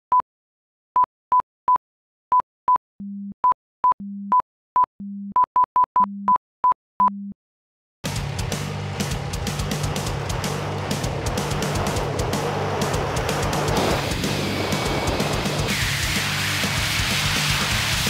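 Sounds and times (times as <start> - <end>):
dense noisy music: 8.1 - 18.0.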